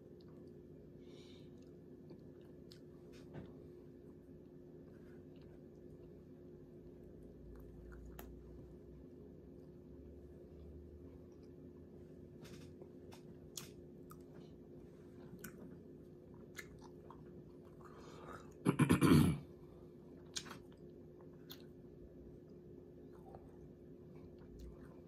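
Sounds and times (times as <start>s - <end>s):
close-up chewing: 12.8s - 18.6s.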